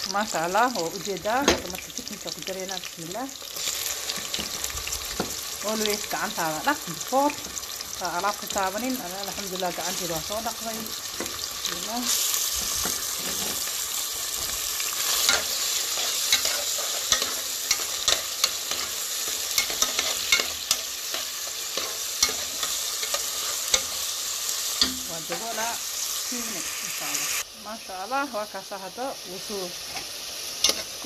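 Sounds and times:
food sizzling in hot oil: 0.0 - 31.0
metal spoon scraping pot: 12.6 - 24.0.

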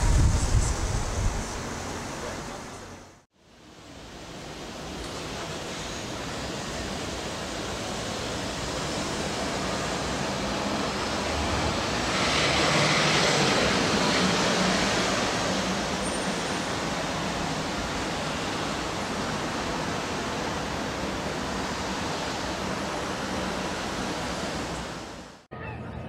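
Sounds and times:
street traffic noise: 0.0 - 26.0
vehicle passing close: 9.1 - 17.5.

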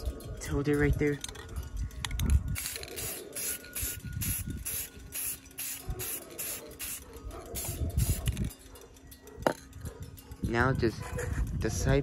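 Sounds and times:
wind buffeting microphone: 0.0 - 12.0
aerosol can spraying in bursts: 2.6 - 7.0, 7.6 - 8.3.

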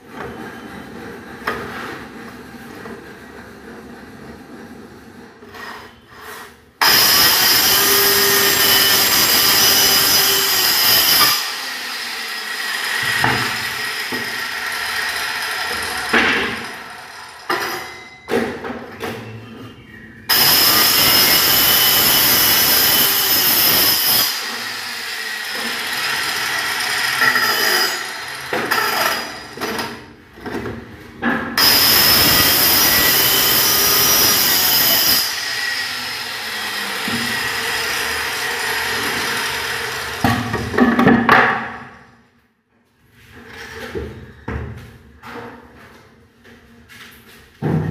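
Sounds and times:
circular saw cutting plywood: 5.5 - 17.5, 20.3 - 29.4, 31.6 - 40.5.

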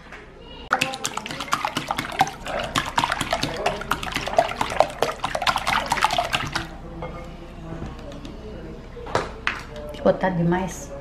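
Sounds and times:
eggs whisked in a bowl: 0.7 - 6.8.

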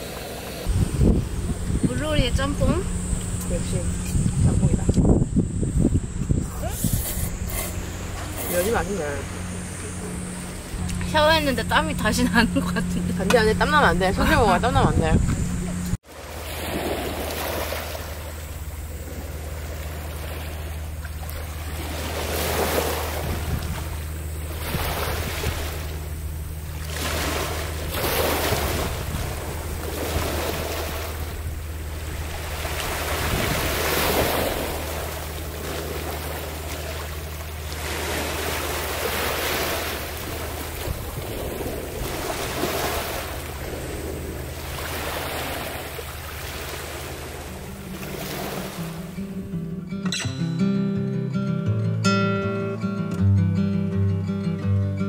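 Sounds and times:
sea waves on pebbly shore: 0.0 - 1.0, 16.0 - 49.2
steady low hum: 0.0 - 50.0.

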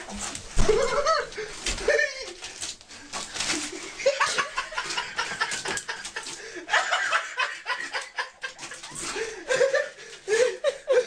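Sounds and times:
person laughing breathily: 3.7 - 11.0.

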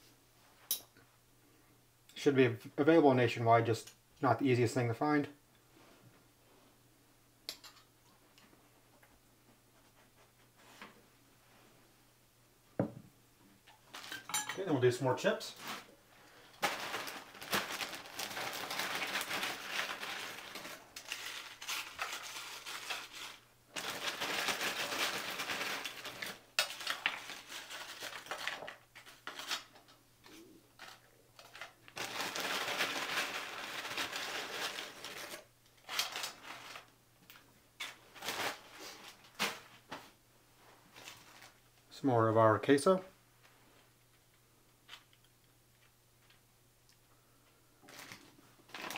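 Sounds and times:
tortilla chips crackling and rustling: 16.6 - 39.8, 47.8 - 48.9.

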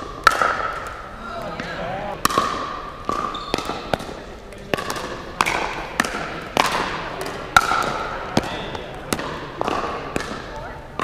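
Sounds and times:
paddles hitting plastic ball: 2.2 - 11.0.

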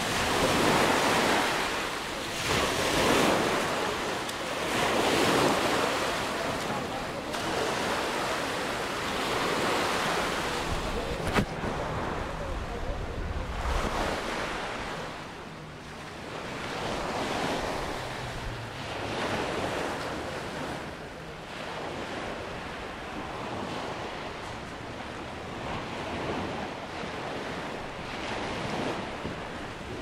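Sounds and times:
waves washing onto sand: 0.0 - 30.0
wind rumble on microphone: 10.4 - 15.2.

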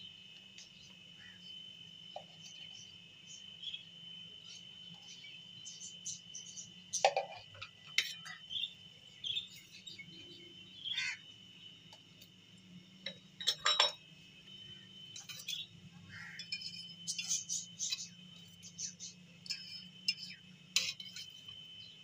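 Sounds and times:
high insect trill: 0.0 - 22.0
kitchen utensils clinking: 13.4 - 14.0.

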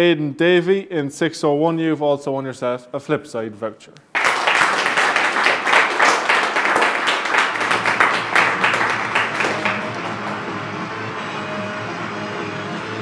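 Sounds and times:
audience applauding: 4.1 - 10.8
background music: 5.7 - 13.0.

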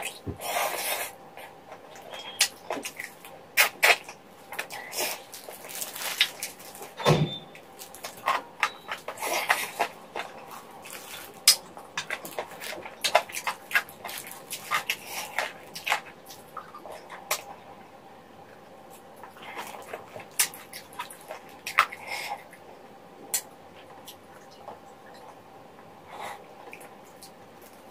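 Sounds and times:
wet chewing and sucking sounds: 0.0 - 7.0, 7.7 - 17.5.

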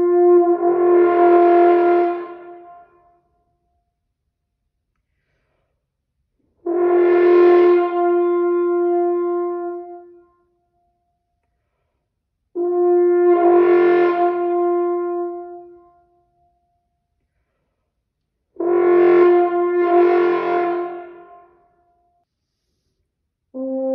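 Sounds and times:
french horn long notes with flutter: 0.0 - 3.6, 6.6 - 11.3, 12.5 - 17.1, 18.5 - 22.2, 23.5 - 23.9.

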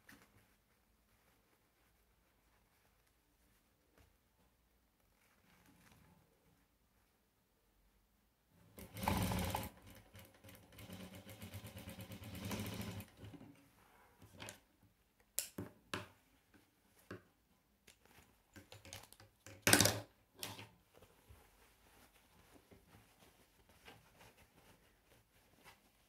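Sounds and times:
sewing machine stitching: 8.8 - 13.4.

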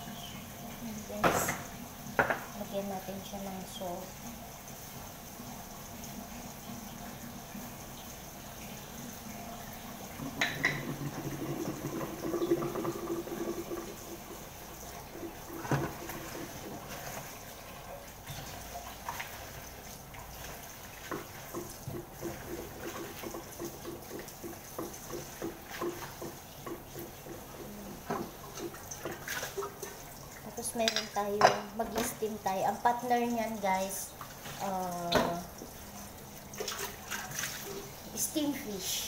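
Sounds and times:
tap running into steel sink: 1.2 - 2.5, 10.2 - 14.4, 35.0 - 35.7.

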